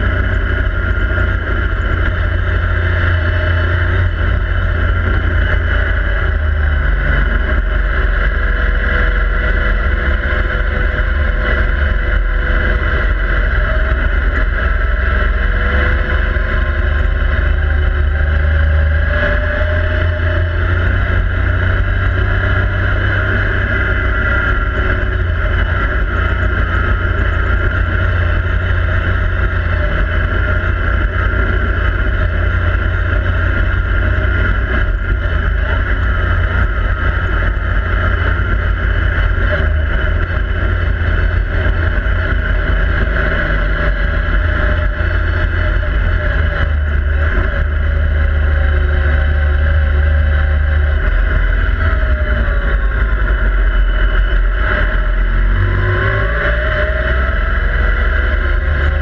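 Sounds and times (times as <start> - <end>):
vehicle engine running: 0.0 - 59.0.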